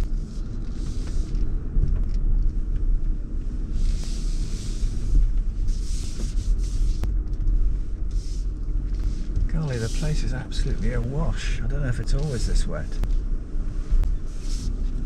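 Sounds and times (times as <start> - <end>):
vehicle engine low rumble: 0.0 - 15.0
water swishing against vehicle: 3.7 - 11.5.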